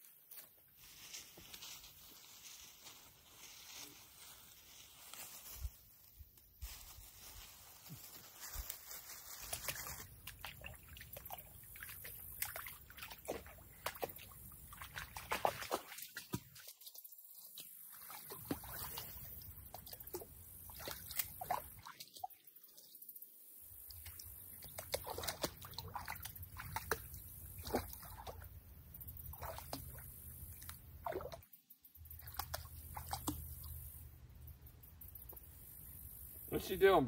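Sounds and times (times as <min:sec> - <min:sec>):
lake water sloshing and trickling: 0:08.0 - 0:34.1
small water splashes: 0:08.4 - 0:23.0, 0:23.7 - 0:28.6, 0:29.2 - 0:34.0.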